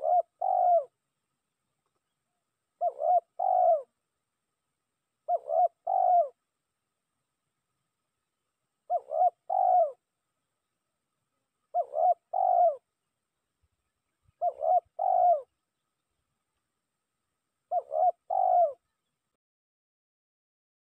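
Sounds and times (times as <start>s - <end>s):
dove cooing: 0.0s - 1.0s, 2.7s - 4.0s, 5.2s - 6.4s, 8.8s - 10.1s, 11.7s - 13.0s, 14.2s - 15.8s, 17.7s - 19.1s.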